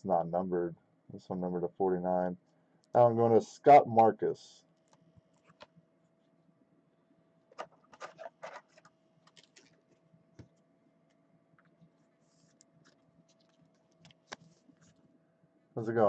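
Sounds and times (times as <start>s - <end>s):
faint steady hum: 0.0s - 16.0s
plastic clicks and scrapes: 7.5s - 10.0s.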